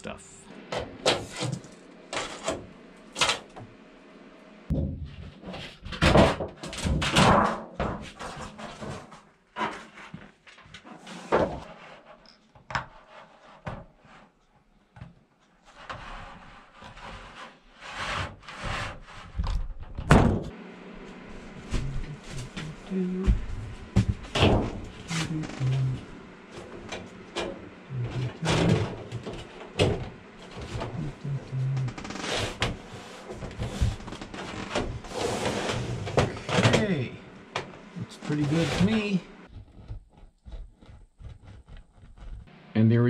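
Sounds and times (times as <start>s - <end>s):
metal sheet flexing and rustling: 5.1s - 12.2s, 24.2s - 37.1s.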